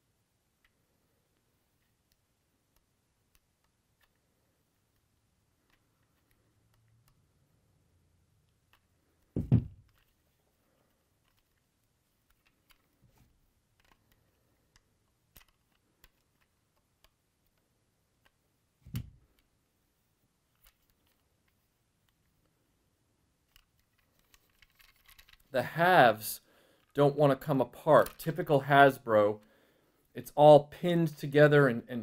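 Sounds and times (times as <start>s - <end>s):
small plastic clicks: 1.4s - 7.3s, 8.4s - 10.2s, 10.8s - 19.6s, 20.5s - 22.6s, 23.4s - 25.5s
dull thumps: 9.3s - 9.9s.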